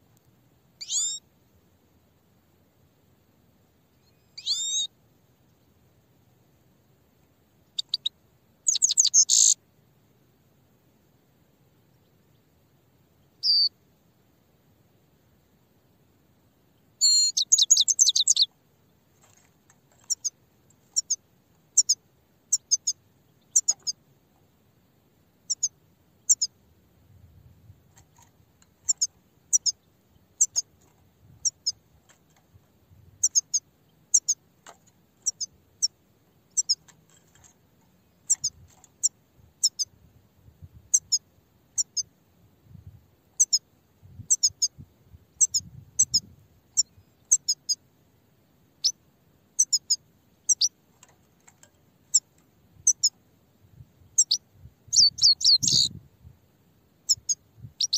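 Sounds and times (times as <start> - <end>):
bird chirping: 0.8 - 1.3, 3.9 - 5.8, 7.6 - 9.6, 13.2 - 13.8, 16.8 - 24.0, 25.4 - 26.6, 28.0 - 32.4, 33.2 - 40.0, 40.9 - 41.2, 41.8 - 42.1, 43.4 - 43.6, 44.2 - 44.8, 45.4 - 47.8, 48.8 - 49.0, 49.6 - 53.2, 54.0 - 56.0, 57.0 - 57.9.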